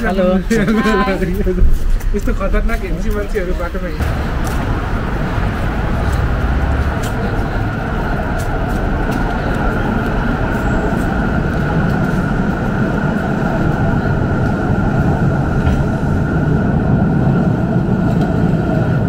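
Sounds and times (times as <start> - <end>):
train rumbling: 0.0 - 19.0
high whine: 4.0 - 18.0.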